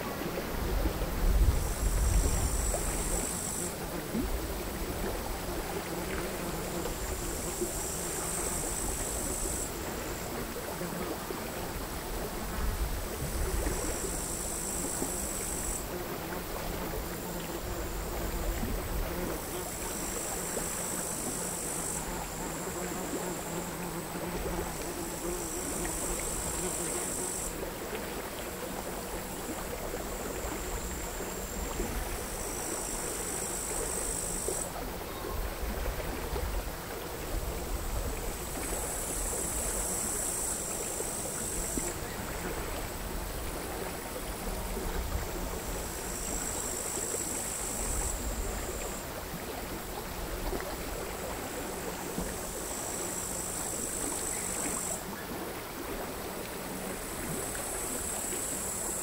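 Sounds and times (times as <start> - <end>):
crickets singing: 1.4 - 3.8, 13.6 - 15.9, 19.5 - 27.5, 30.0 - 35.4, 38.8 - 42.3, 52.4 - 55.0, 57.2 - 59.0.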